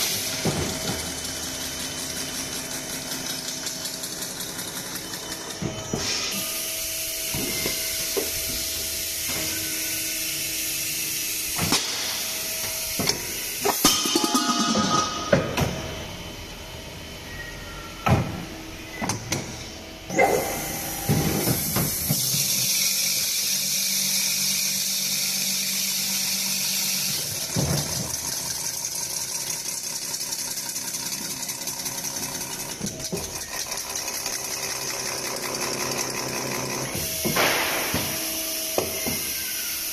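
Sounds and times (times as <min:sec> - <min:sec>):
tool hissing on spinning metal: 0:01.2 - 0:15.3, 0:20.8 - 0:27.6, 0:36.9 - 0:39.9
metal clanks and knocks: 0:13.7 - 0:15.9.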